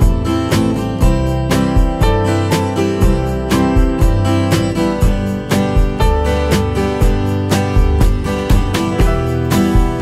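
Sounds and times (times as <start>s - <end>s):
acoustic guitar strumming: 0.0s - 10.0s
steady beat: 7.0s - 10.0s.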